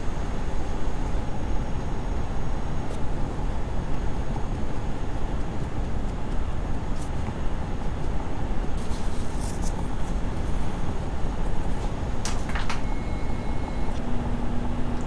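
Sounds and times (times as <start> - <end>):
car road and engine rumble: 0.0 - 15.0
high rustles: 8.8 - 10.7.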